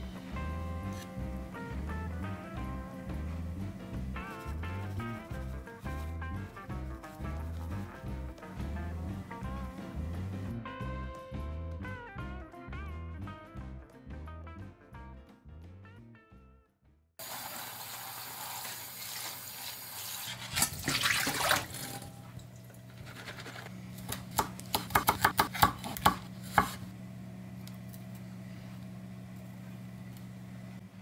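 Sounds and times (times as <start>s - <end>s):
low steady hum: 0.0s - 10.6s, 20.4s - 31.0s
water splashing: 17.2s - 22.8s
tap water running: 17.2s - 23.0s.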